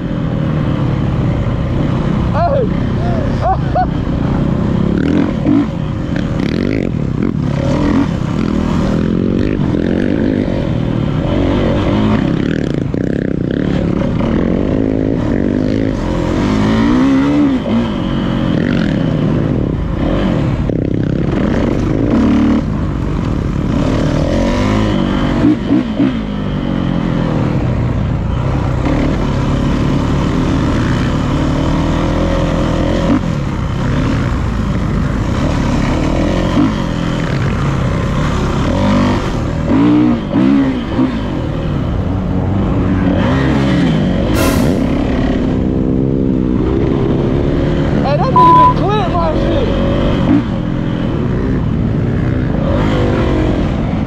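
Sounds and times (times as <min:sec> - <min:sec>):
dirt bike engine revving: 0:00.0 - 0:27.6, 0:42.4 - 0:54.0.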